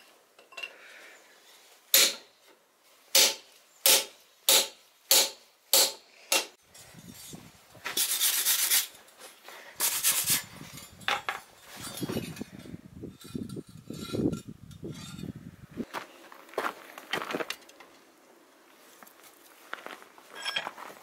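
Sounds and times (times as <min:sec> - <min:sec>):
wire brush scrubbing steel: 0:06.8 - 0:09.0, 0:09.8 - 0:12.5.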